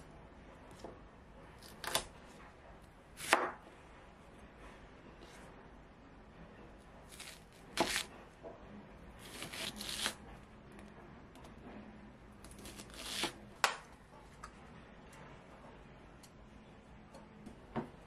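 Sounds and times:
knife slicing onion: 3.2s - 3.6s, 7.1s - 8.1s, 9.2s - 10.2s, 12.4s - 13.4s.

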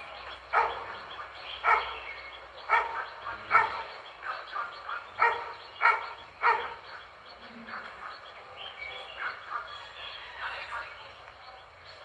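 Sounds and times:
dog barking: 0.5s - 0.9s, 1.6s - 2.0s, 2.7s - 6.8s.

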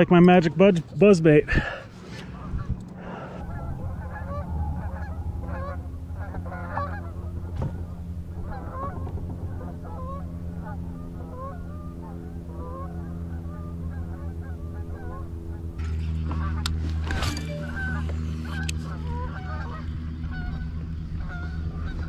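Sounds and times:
steady low hum: 0.0s - 22.0s
geese honking: 2.3s - 16.7s, 17.4s - 22.0s.

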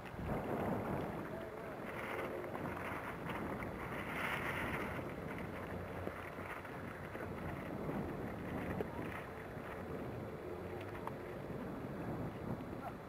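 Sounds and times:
wind on microphone: 0.0s - 13.0s.

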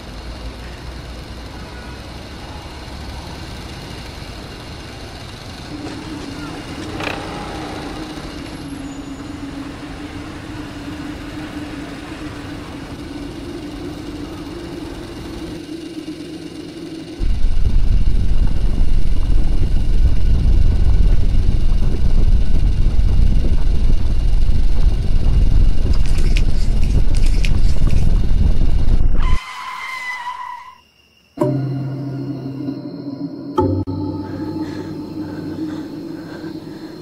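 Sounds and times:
scooter engine hum: 0.0s - 29.2s, 31.4s - 37.0s
loud deep rumble: 1.4s - 29.3s, 31.4s - 37.0s
held tone: 31.4s - 37.0s.

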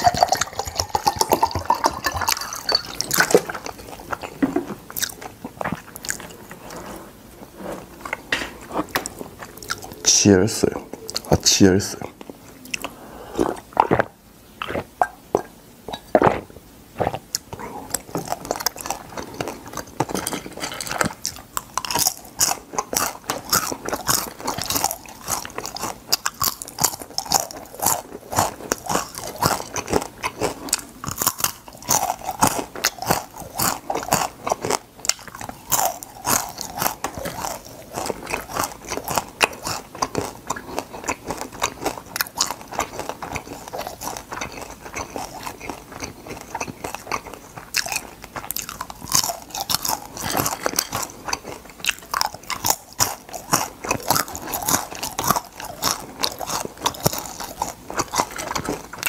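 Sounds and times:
crunching crispy crab shells: 17.2s - 59.0s.

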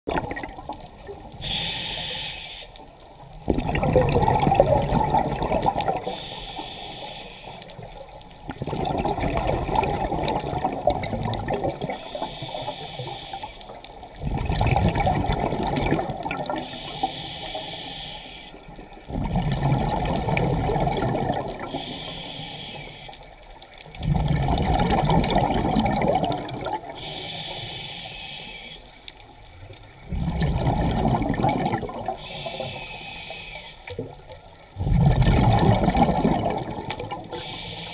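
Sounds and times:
diver breathing through regulator: 1.4s - 2.9s, 6.0s - 7.9s, 12.0s - 13.8s, 16.6s - 18.7s, 21.6s - 23.3s, 26.9s - 29.1s, 32.1s - 34.0s, 37.3s - 37.9s
bubbling rush on exhale: 3.4s - 23.1s, 24.0s - 28.9s, 30.0s - 37.9s.

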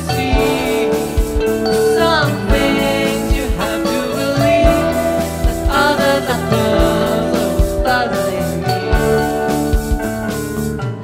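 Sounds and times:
person singing: 0.0s - 10.1s
rock band playing: 0.0s - 11.0s
kick drum hitting: 0.3s - 6.0s.

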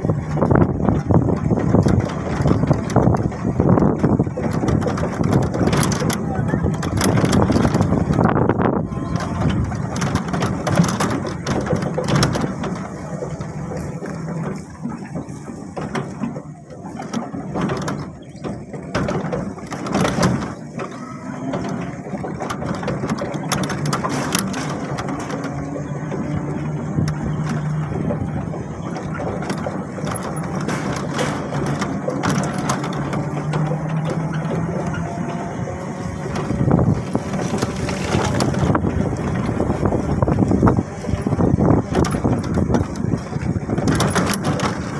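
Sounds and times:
vehicle rattling on dirt road: 0.0s - 44.9s.

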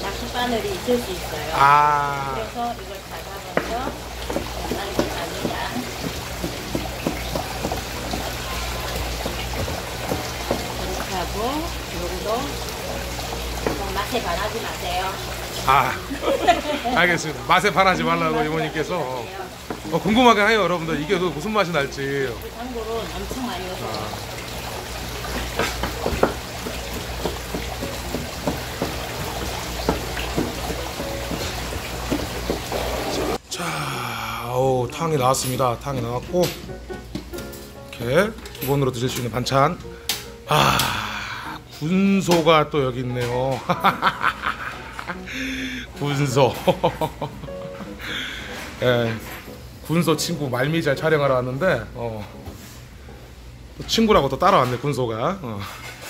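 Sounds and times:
water trickling: 0.0s - 36.9s
knife chopping on plastic board: 4.3s - 8.3s, 25.6s - 32.6s.

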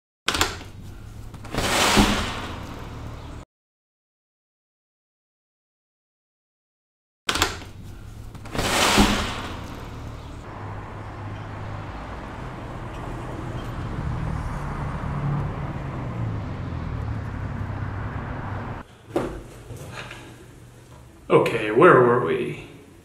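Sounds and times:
low rumble of traffic: 0.6s - 3.4s, 7.6s - 19.0s
car passing: 8.6s - 18.8s.

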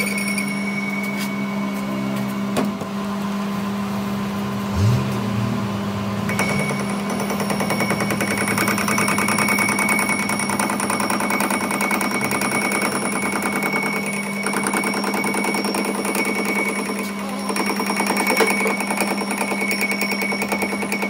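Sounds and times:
high whine: 0.0s - 10.9s
machine hum: 0.0s - 21.0s
lathe cutting tool chattering: 6.2s - 21.0s.

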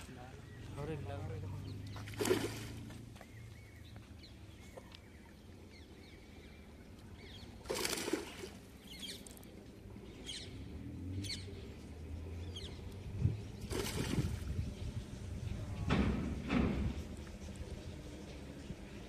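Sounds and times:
fish splashing at water surface: 1.9s - 2.9s, 7.6s - 9.4s, 13.6s - 14.6s
faint bird chirps: 3.2s - 14.1s.

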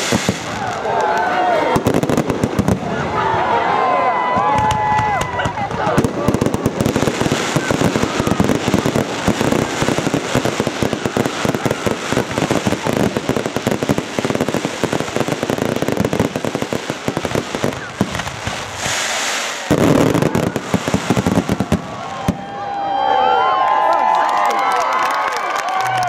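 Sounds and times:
fireworks hiss: 0.0s - 0.9s, 5.7s - 22.2s
fireworks bangs and crackle: 0.0s - 23.7s.

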